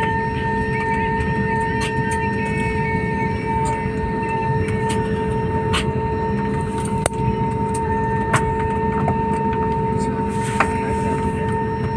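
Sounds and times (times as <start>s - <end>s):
jet cabin roar: 0.0s - 11.9s
two-tone engine whine: 0.0s - 11.9s.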